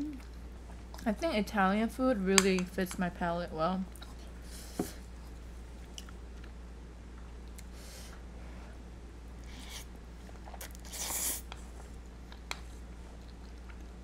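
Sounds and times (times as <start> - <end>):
person slurping noodles: 10.5 - 11.4.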